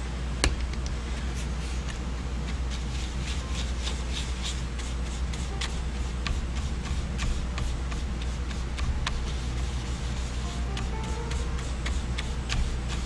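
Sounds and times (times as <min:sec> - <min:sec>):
steady low hum: 0:00.0 - 0:13.0
paintbrush scrubbing paint on paper plate: 0:01.2 - 0:13.0.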